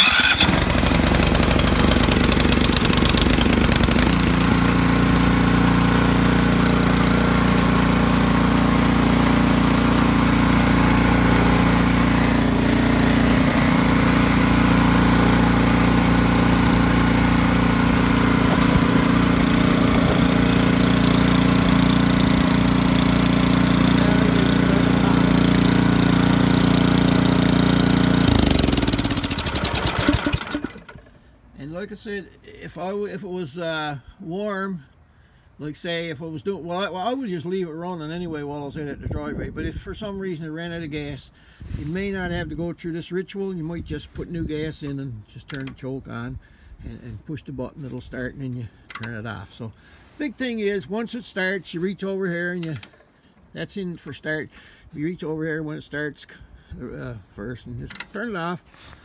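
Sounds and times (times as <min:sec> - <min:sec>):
snowblower engine running: 0:00.0 - 0:31.3, 0:49.8 - 0:50.2, 0:52.6 - 0:53.4.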